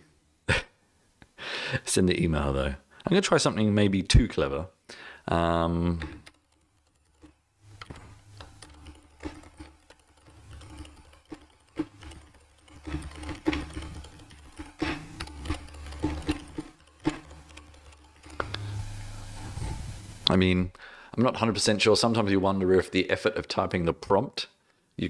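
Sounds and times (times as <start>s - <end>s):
computer keyboard typing: 5.4s - 20.3s.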